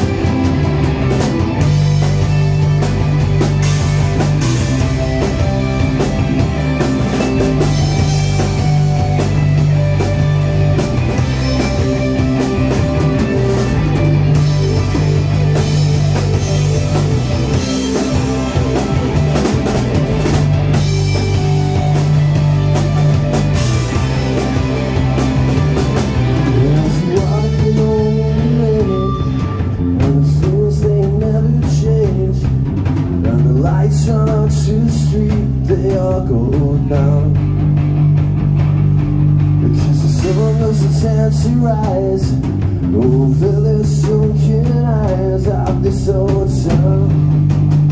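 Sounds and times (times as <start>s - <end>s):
live rock band playing: 0.0s - 47.9s
person singing: 26.4s - 32.5s, 39.7s - 42.4s.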